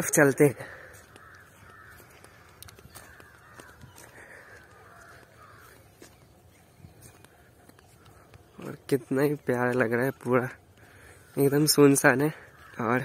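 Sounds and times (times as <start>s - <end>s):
crows cawing: 0.0s - 9.2s, 9.8s - 13.0s.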